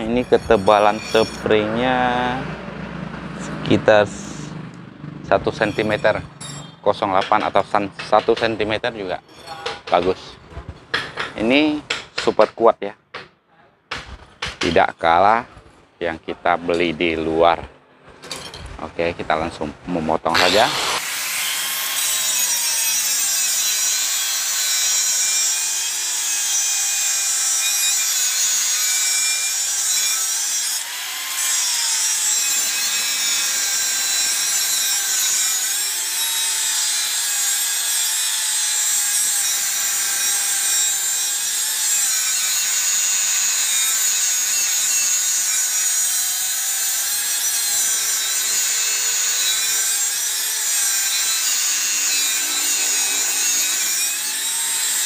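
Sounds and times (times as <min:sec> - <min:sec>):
angle grinder cutting steel: 0:00.0 - 0:02.6, 0:05.3 - 0:10.1, 0:20.3 - 0:55.0.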